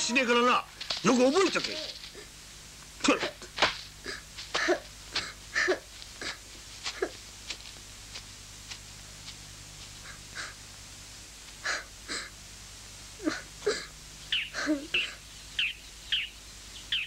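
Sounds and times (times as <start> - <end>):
boy sobbing and sniffling: 4.0 - 7.2, 10.0 - 10.6, 11.6 - 12.4, 13.2 - 15.2.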